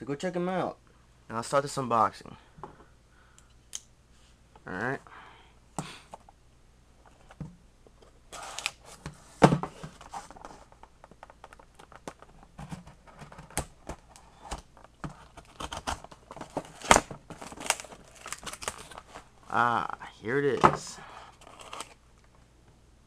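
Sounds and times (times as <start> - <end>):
packing tape tearing off cardboard: 8.3 - 9.0, 13.4 - 19.2, 21.4 - 22.0.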